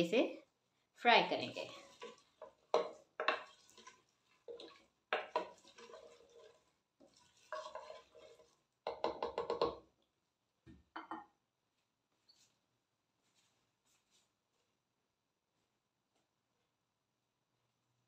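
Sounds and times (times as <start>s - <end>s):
wooden spoon scraping a pot: 1.3s - 9.8s
onions frying in oil: 1.4s - 9.6s.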